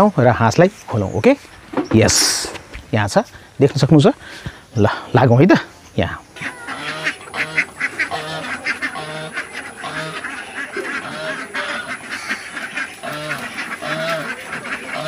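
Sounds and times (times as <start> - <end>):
ducks quacking: 4.3 - 15.0.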